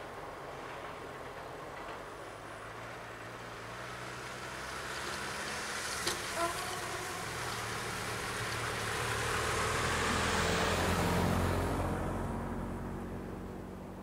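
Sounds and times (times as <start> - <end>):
car engine hum and tyre noise: 0.0 - 14.0.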